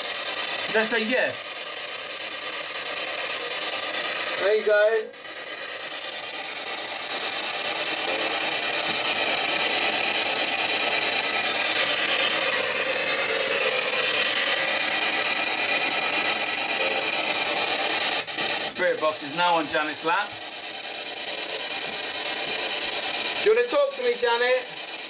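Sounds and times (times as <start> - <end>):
radio static hiss: 0.7 - 1.6, 7.2 - 25.0.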